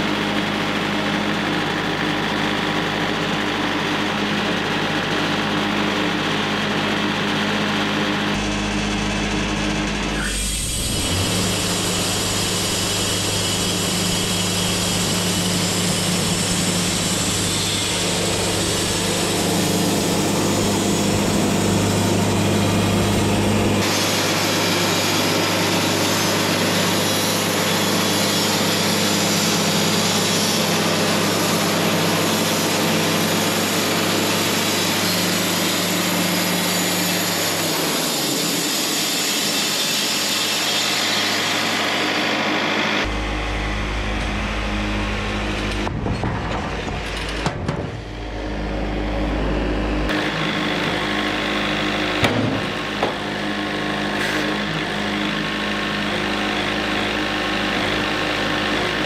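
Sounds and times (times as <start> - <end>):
bandsaw sawmill sawing log: 0.0 - 59.0
low hum: 43.0 - 50.1.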